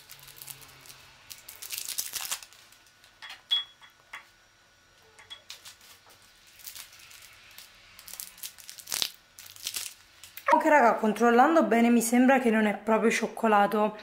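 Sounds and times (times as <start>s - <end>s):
foil wrappers crinkling: 0.0s - 3.2s, 5.5s - 10.5s.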